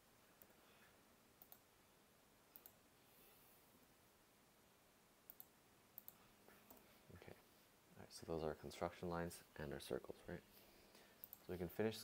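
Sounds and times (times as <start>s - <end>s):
computer mouse clicks: 1.4s - 1.7s, 2.5s - 2.8s, 5.3s - 6.9s, 11.2s - 11.5s.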